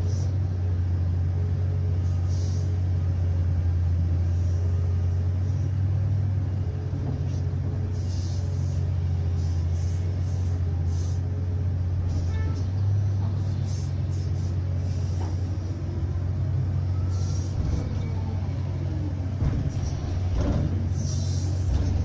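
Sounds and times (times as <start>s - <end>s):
excavator low drone: 0.0s - 22.0s
faint brief hisses: 2.0s - 2.8s, 7.3s - 11.3s.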